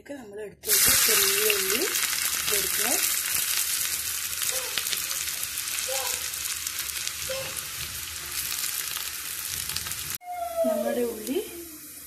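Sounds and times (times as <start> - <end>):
onions sizzling in oil: 0.6 - 12.0.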